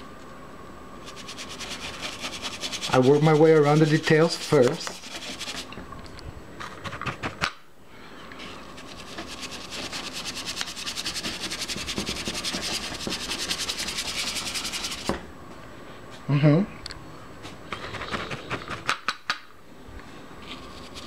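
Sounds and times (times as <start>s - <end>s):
brush scrubbing on paper: 1.0s - 5.7s, 8.7s - 15.1s.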